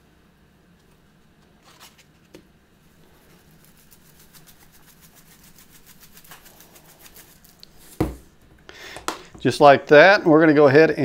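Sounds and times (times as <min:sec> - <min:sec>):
seasoning shaker rattling: 0:03.1 - 0:08.1.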